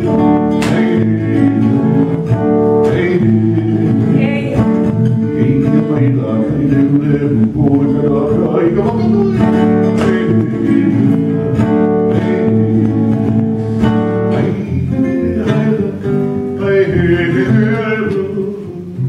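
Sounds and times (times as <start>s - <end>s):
slack-key acoustic guitar: 0.0s - 19.0s
person singing: 2.8s - 11.5s, 12.1s - 13.4s, 14.3s - 19.0s.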